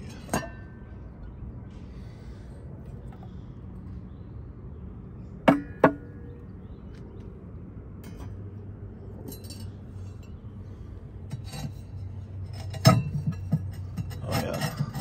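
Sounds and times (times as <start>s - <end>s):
metal grate clanking: 11.3s - 15.0s.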